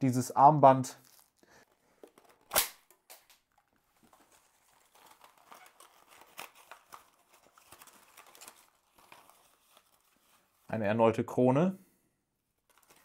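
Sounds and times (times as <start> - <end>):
paper crinkling and tearing: 1.0 - 2.7, 4.0 - 10.7, 12.6 - 13.0
cracker snap: 2.4 - 3.4.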